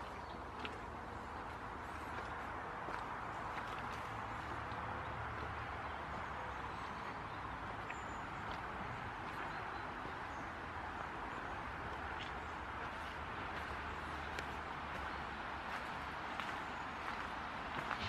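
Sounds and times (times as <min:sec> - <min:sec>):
road traffic hum: 0:00.0 - 0:18.0.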